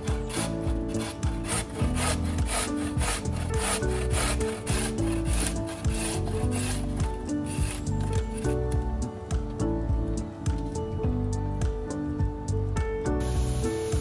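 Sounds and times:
carrot grated on metal grater: 0:00.0 - 0:08.2.

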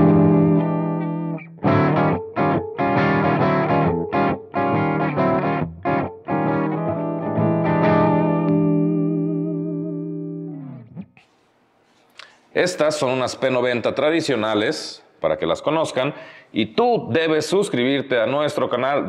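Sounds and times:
overdriven electric guitar chords: 0:00.0 - 0:11.2.

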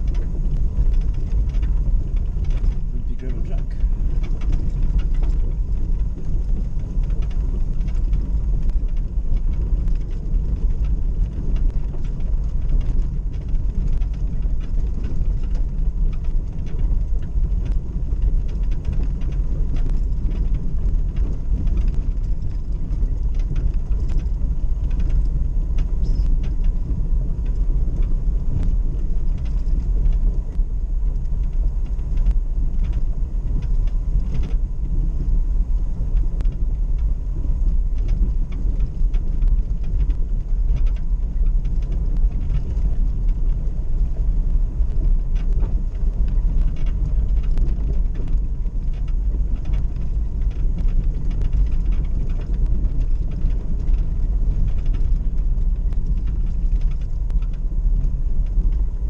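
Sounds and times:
engine and tyre rumble: 0:00.0 - 0:59.0
small clicks and rattles: 0:00.0 - 0:59.0.

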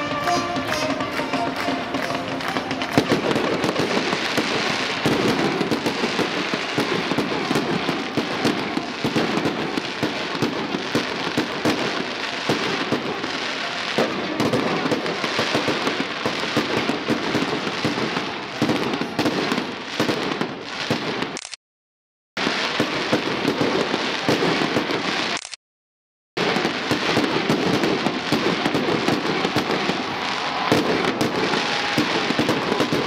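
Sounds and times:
fireworks crackling and popping: 0:00.0 - 0:21.6, 0:22.4 - 0:25.6, 0:26.4 - 0:33.0.

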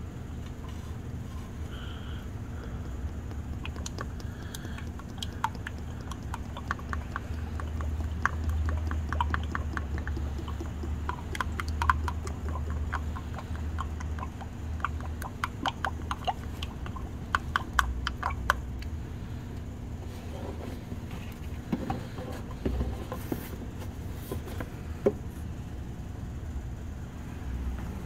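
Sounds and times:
low steady hum: 0:00.0 - 0:28.0
fluid glugging from bottle: 0:02.9 - 0:18.7
air bubbles gurgling: 0:03.0 - 0:18.9.

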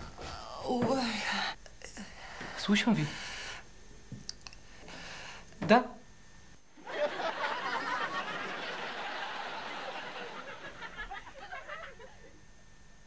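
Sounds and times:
audience laughter: 0:06.8 - 0:12.3.

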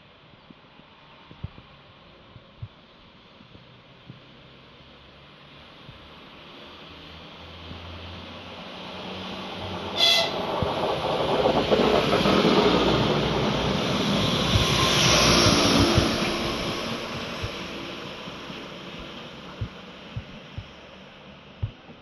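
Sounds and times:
railcar engine passing: 0:06.1 - 0:21.6
wheels clacking over rail joints: 0:09.7 - 0:20.4
train horn blast: 0:10.0 - 0:10.6.

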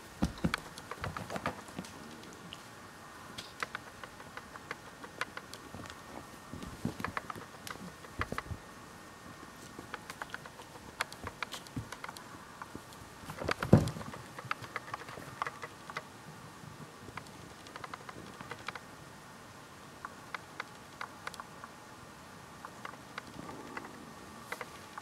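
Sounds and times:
kitten paws clicking and scratching: 0:00.2 - 0:02.6, 0:03.4 - 0:06.0, 0:06.6 - 0:08.6, 0:09.6 - 0:16.1.

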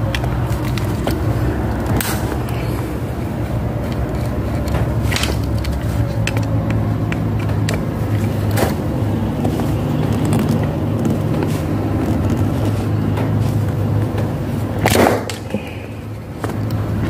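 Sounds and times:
plastic and metal clicks: 0:00.0 - 0:12.6.

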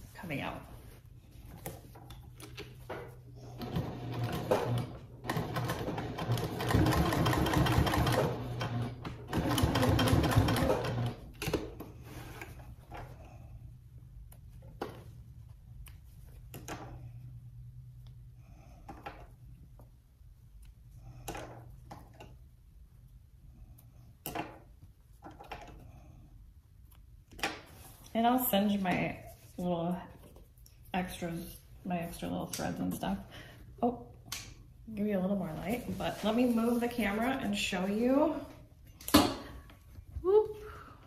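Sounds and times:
sewing machine stitching: 0:03.5 - 0:11.3.

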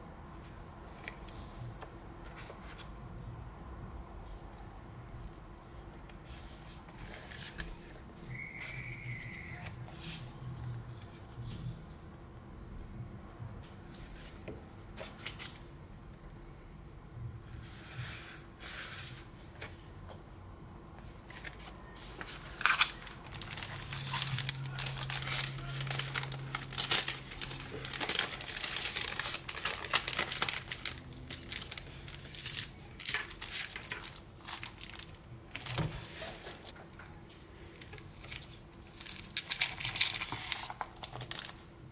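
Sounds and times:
cellophane crinkling: 0:21.4 - 0:36.7, 0:37.8 - 0:41.7.

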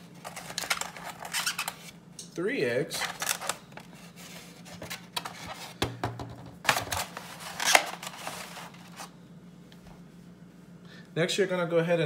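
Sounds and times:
plastic egg carton clicks and knocks: 0:05.8 - 0:06.9.

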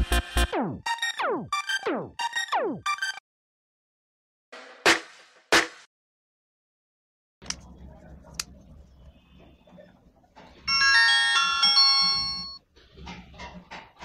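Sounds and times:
phone startup chime: 0:10.7 - 0:12.6.

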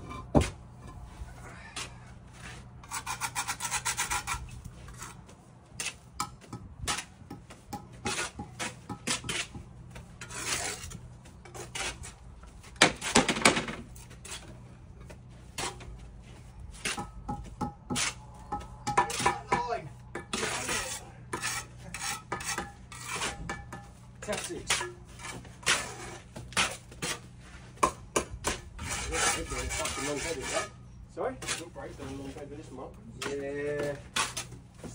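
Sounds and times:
trowels scraping mortar: 0:02.4 - 0:06.0, 0:08.0 - 0:12.2, 0:17.9 - 0:18.2, 0:20.2 - 0:27.8, 0:28.4 - 0:30.8, 0:31.4 - 0:32.5, 0:33.2 - 0:34.6
trowel knocking on concrete blocks: 0:05.8 - 0:10.4, 0:16.8 - 0:25.8, 0:27.8 - 0:28.6.

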